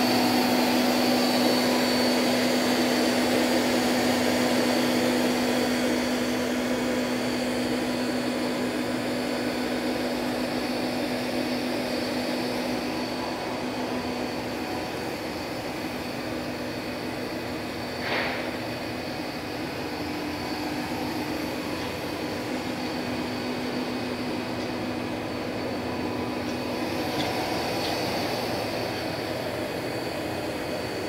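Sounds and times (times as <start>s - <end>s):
machinery humming and whirring: 0.0s - 31.0s.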